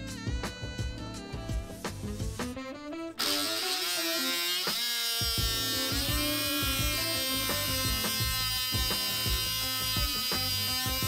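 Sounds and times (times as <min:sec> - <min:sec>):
background music: 0:00.0 - 0:11.0
small electric motor whining: 0:03.2 - 0:11.0.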